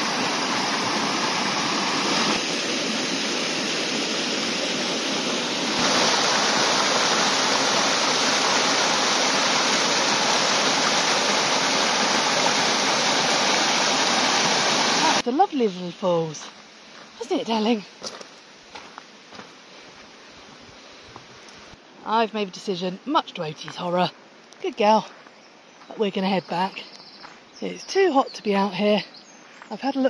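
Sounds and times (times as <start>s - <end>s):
waterfall rushing over rocks: 0.0s - 15.5s.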